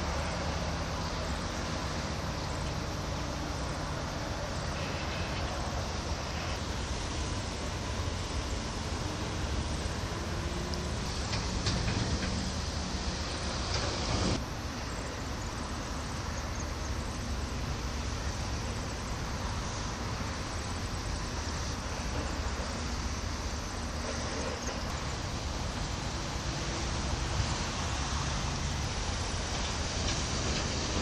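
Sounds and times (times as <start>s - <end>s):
distant port machinery: 0.0s - 31.0s
distant road traffic: 0.0s - 31.0s.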